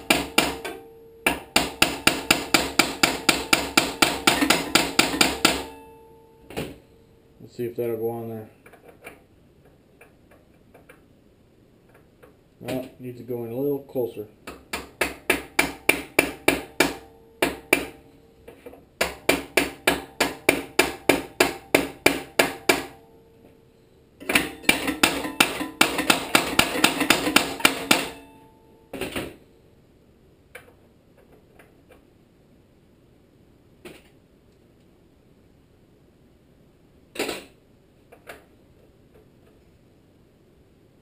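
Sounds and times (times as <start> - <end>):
hammer tapping metal pulley: 0.0 - 6.0, 24.2 - 28.4.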